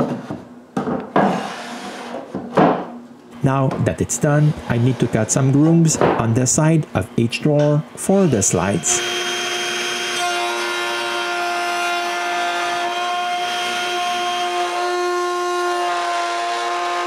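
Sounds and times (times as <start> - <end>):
router whining cutting wood: 7.5 - 17.0.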